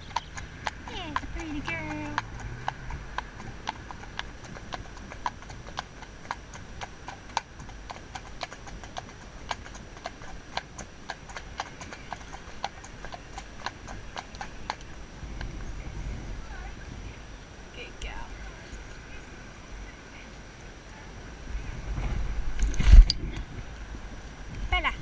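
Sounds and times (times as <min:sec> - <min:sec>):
horse hooves on tarmac: 0:00.0 - 0:18.9.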